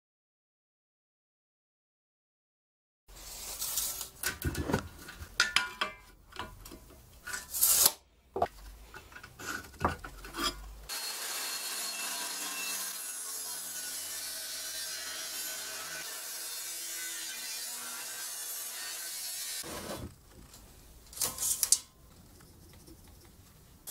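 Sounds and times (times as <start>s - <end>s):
knocks and scrapes on wooden bench: 8.4s - 10.6s, 19.6s - 20.6s
angle grinder cutting steel: 10.9s - 19.7s.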